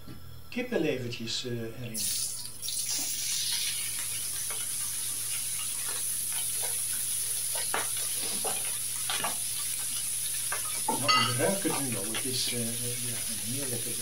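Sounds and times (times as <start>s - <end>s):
meat sizzling in a frying pan: 2.0s - 14.0s
wooden spoon scraping a pan: 5.8s - 13.8s.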